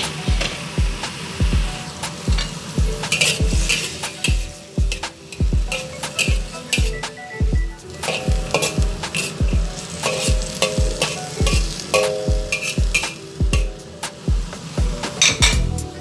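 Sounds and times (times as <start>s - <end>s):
vegetables sizzling in a wok: 0.0s - 16.0s
spatula scraping a pan: 1.8s - 7.0s, 7.8s - 13.9s.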